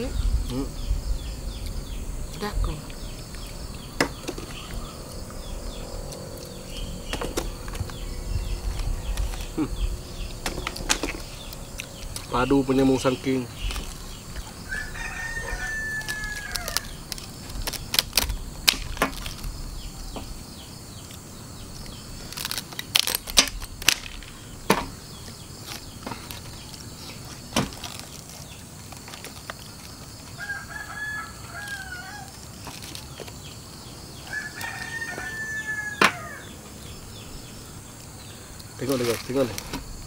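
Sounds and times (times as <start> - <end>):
rooster crowing: 14.6 - 17.1, 30.3 - 32.4, 34.2 - 36.9
cracks of husk split by knife: 15.5 - 19.5, 22.3 - 25.0.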